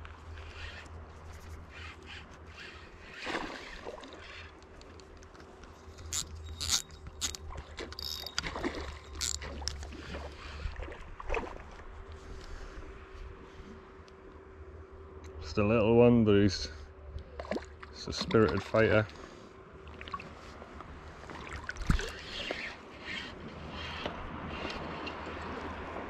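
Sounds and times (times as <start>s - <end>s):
fishing reel clicks and scrapes: 0.4s - 10.6s, 21.9s - 25.4s.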